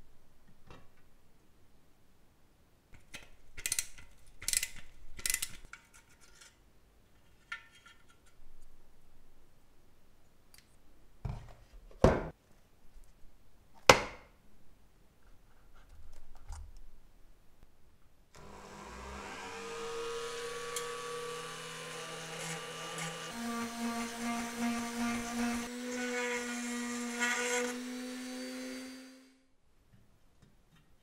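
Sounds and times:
rotary tool grinding metal: 18.4s - 29.4s.

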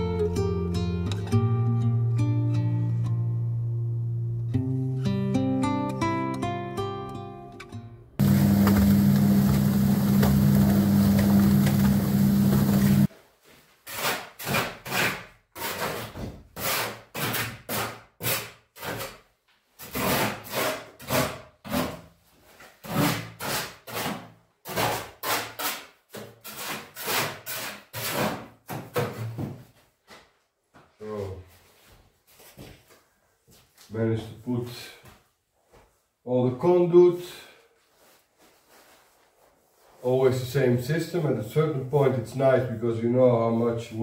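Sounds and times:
motor running loudly: 8.2s - 13.1s
hand saw cutting wood: 13.8s - 19.2s, 19.8s - 22.1s, 22.8s - 28.5s.

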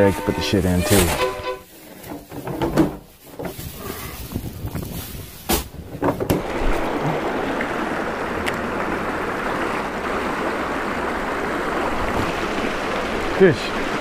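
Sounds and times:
river water over rocks: 6.3s - 14.0s.

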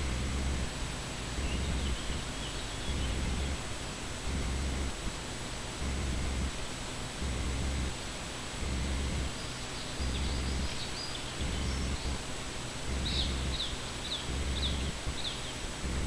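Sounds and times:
steady hiss: 0.0s - 16.0s
small bird chirping: 1.4s - 3.6s, 9.3s - 12.2s, 13.0s - 15.7s.

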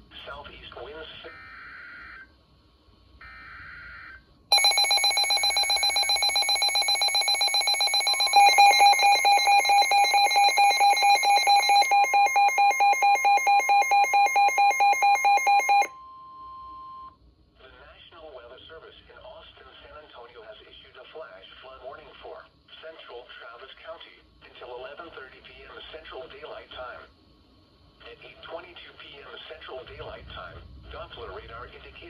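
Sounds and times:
rapid pulsing alarm beeps: 4.5s - 15.9s
steady warning alarm tone: 4.5s - 16.0s.

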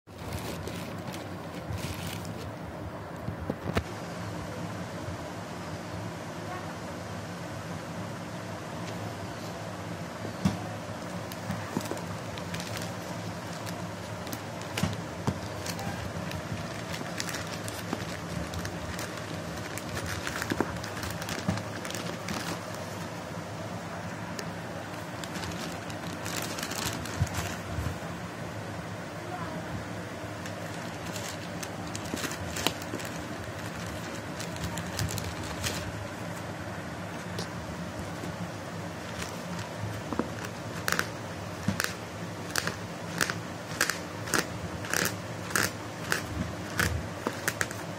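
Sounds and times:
steady low hum: 0.0s - 47.9s
plastic mailer bag crinkling: 0.1s - 2.6s, 11.0s - 23.2s, 24.3s - 28.0s, 30.3s - 36.1s, 39.0s - 47.8s.

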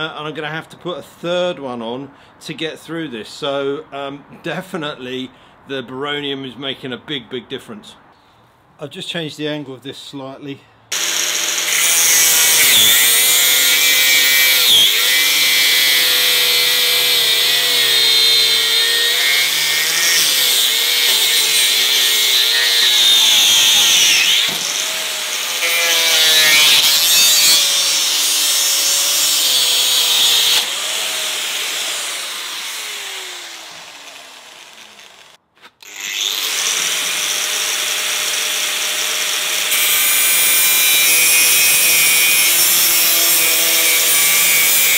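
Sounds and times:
angle grinder cutting metal: 10.9s - 44.9s.

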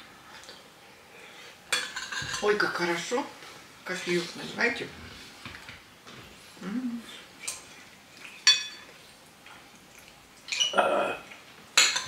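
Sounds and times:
cutlery clinking against dishes: 1.7s - 2.5s, 8.3s - 9.0s, 11.8s - 12.0s
cutlery clatter: 8.4s - 8.9s, 11.8s - 12.0s.

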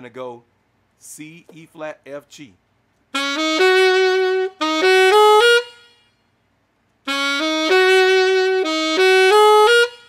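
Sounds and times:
saxophone rising lick: 3.1s - 6.2s, 7.0s - 10.0s.

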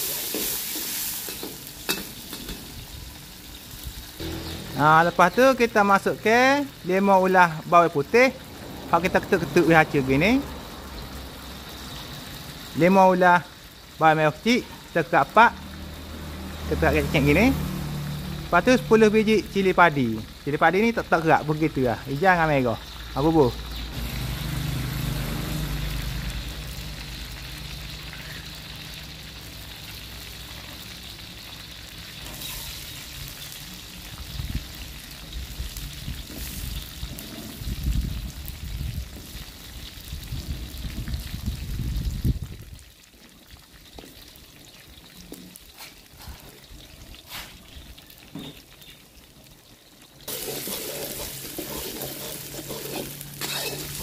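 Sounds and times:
metal spatula stirring: 0.0s - 2.6s, 50.3s - 54.0s
oil sizzling in a wok: 0.0s - 54.0s.

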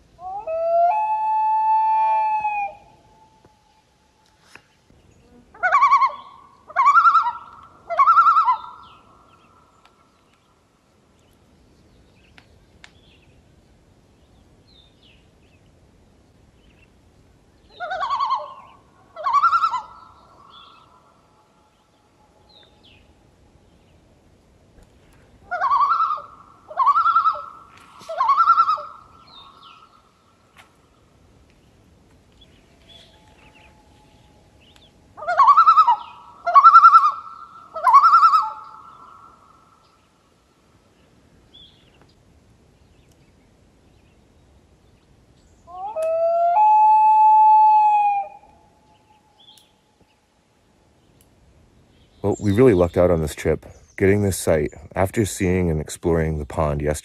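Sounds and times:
loon calling: 0.2s - 3.8s, 5.2s - 9.9s, 17.7s - 23.1s, 25.3s - 30.1s, 32.8s - 40.0s, 45.6s - 49.7s
small birds chirping: 7.0s - 15.8s, 17.6s - 46.0s, 48.9s - 50.3s, 50.9s - 57.0s.

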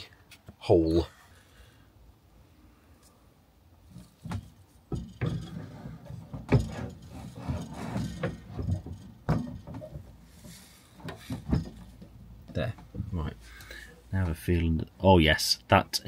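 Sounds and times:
pipe fittings knocking on wood: 4.2s - 13.2s.

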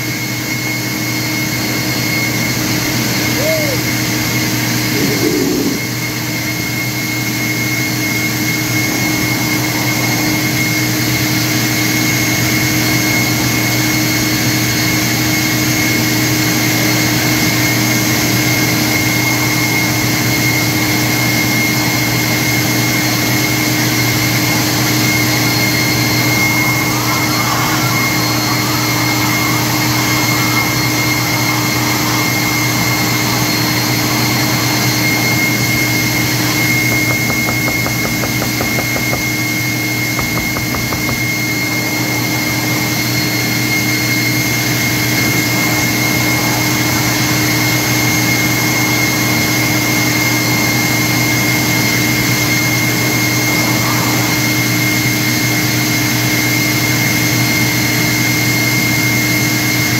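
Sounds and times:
leaf blower rushing air: 2.8s - 12.7s, 24.5s - 56.2s.

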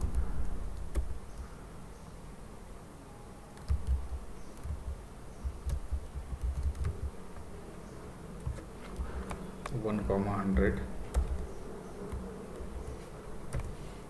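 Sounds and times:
computer keyboard typing: 0.0s - 1.5s, 3.6s - 7.5s, 8.4s - 9.8s, 10.5s - 13.8s
steady low buzz: 0.0s - 14.0s.

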